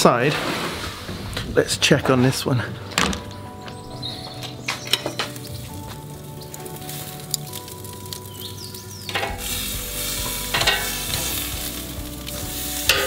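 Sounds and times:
chicken sizzling on a grill: 0:04.9 - 0:13.0
metal tongs clacking: 0:09.1 - 0:09.5, 0:10.5 - 0:11.4.

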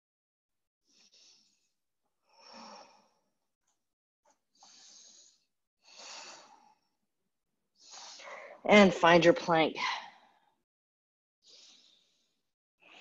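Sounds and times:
woman breathing: 0:00.8 - 0:03.4, 0:04.3 - 0:07.0, 0:07.8 - 0:08.7, 0:11.4 - 0:13.0.

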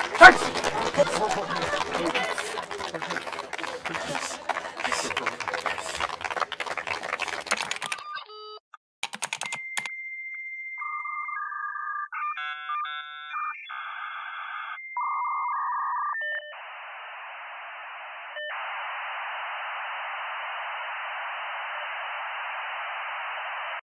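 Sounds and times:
modem dialing and beeping tones: 0:07.7 - 0:08.6, 0:10.8 - 0:16.6
modem static hissing: 0:16.6 - 0:23.8.

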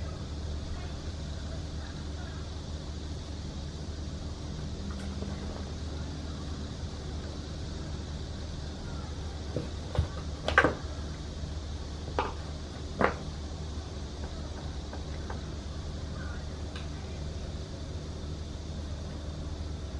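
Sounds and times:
low hum: 0:00.0 - 0:19.9.

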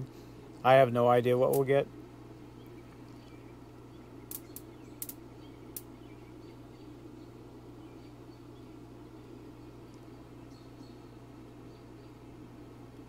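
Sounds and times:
faint low hum: 0:00.0 - 0:13.0
short sharp clicks: 0:04.3 - 0:05.2.

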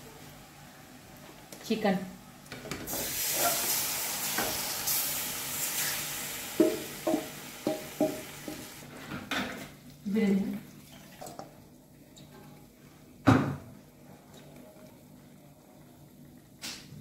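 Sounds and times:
chicken sizzling in oil: 0:02.9 - 0:08.9.

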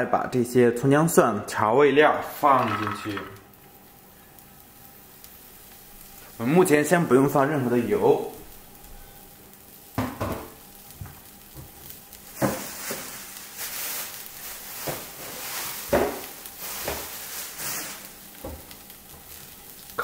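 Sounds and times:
vegetables sizzling in dry pan: 0:02.1 - 0:20.0.

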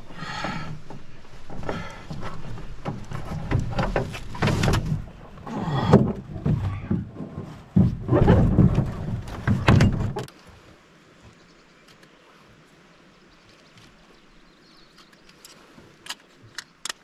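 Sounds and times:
brush rustling against canoe: 0:00.0 - 0:17.0
knocks and scrapes on canoe hull: 0:00.3 - 0:10.4.

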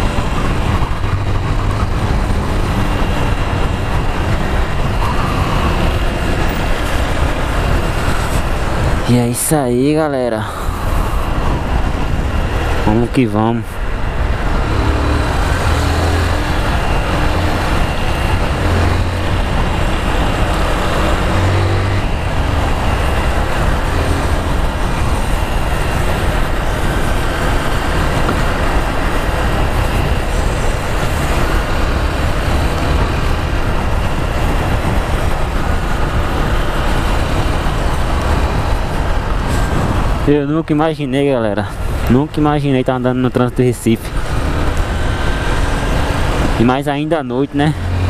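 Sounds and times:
motorcycle engine running: 0:00.0 - 0:09.0
wind noise on microphone: 0:00.0 - 0:48.0.

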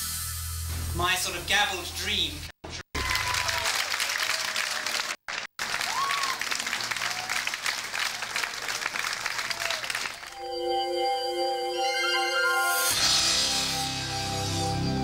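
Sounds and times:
crowd applauding: 0:03.0 - 0:10.4.

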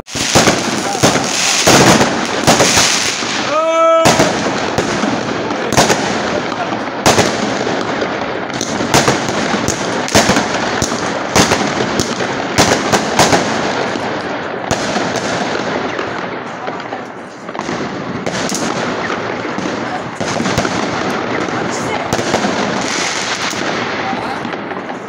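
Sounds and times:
fireworks bangs: 0:00.0 - 0:25.0
fireworks crackling: 0:00.0 - 0:25.0.

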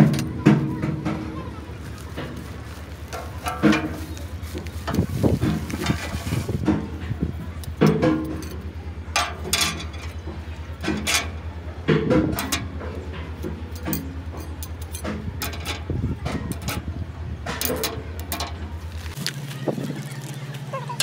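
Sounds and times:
plastic bag rustling: 0:01.9 - 0:06.6
metal discs clinking: 0:02.1 - 0:19.4.

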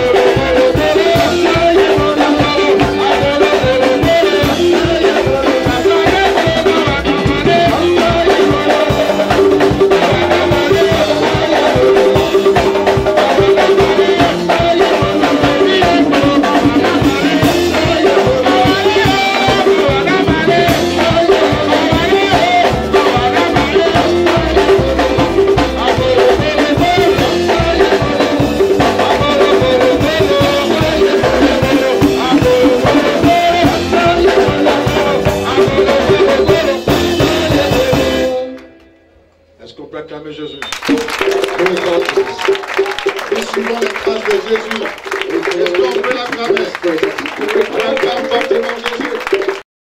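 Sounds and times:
man singing into a microphone: 0:00.0 - 0:38.7
band with drums and percussion: 0:00.0 - 0:39.5, 0:40.4 - 0:49.6.

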